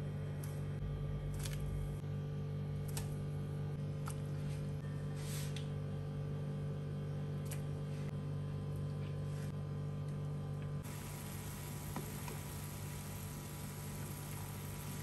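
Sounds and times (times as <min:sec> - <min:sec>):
steady low hum: 0:00.0 - 0:15.0
boiling water hissing: 0:10.8 - 0:15.0.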